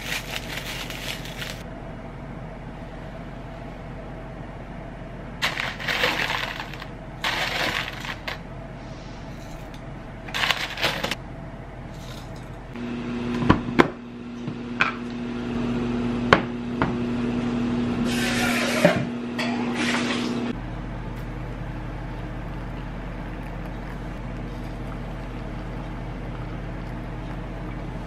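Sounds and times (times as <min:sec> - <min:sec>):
dried food pattering into bowls: 0:00.0 - 0:01.6
paper packet shaken: 0:00.0 - 0:01.6, 0:05.4 - 0:08.4
electric hum: 0:00.0 - 0:28.0.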